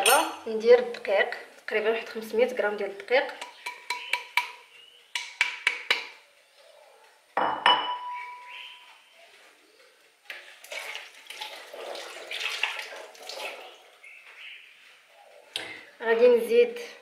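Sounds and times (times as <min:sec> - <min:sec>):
metallic clink of a bowl: 0:00.0 - 0:00.4
taps against a bowl rim: 0:03.4 - 0:06.1.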